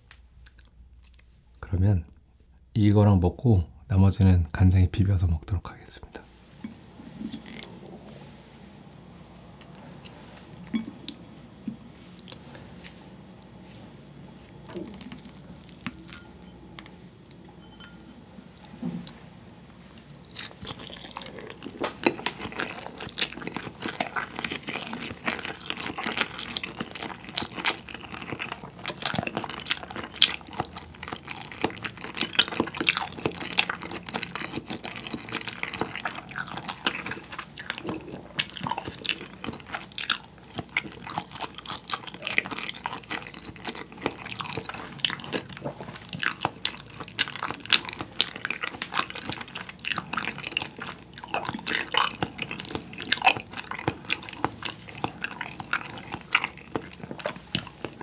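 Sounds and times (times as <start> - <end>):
wet chewing: 14.5 - 17.4, 20.0 - 58.0.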